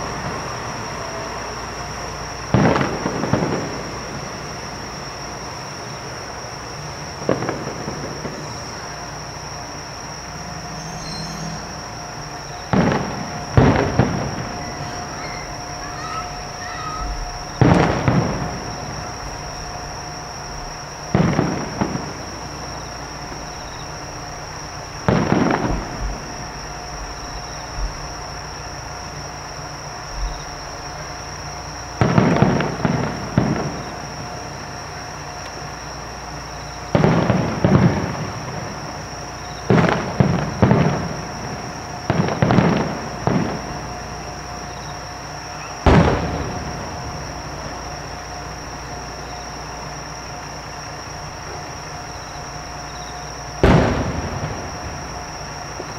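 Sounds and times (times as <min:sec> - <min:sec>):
distant fireworks booms: 0:00.0 - 0:55.9.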